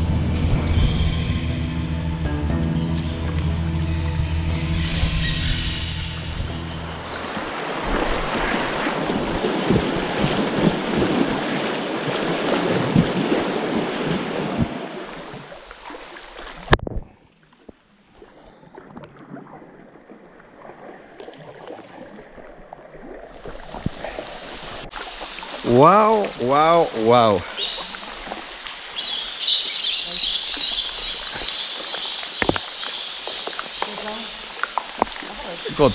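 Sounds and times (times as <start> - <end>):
wind rumbling on microphone: 4.8 - 15.5
paddle strokes splashing water: 6.9 - 35.9.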